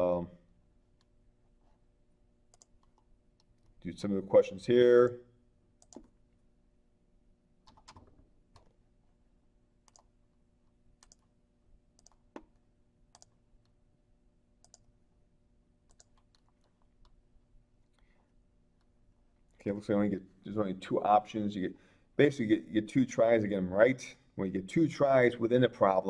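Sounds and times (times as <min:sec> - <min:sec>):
computer keyboard clicks: 0:05.8 - 0:06.1, 0:07.6 - 0:08.7, 0:09.9 - 0:10.1, 0:11.0 - 0:11.3, 0:12.0 - 0:13.4, 0:14.6 - 0:14.9, 0:15.9 - 0:17.2.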